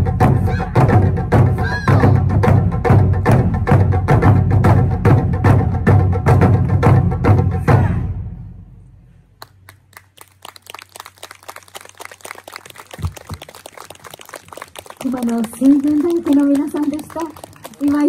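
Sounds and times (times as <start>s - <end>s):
taiko drums beating: 0.0s - 8.3s
audience clapping: 9.4s - 18.0s.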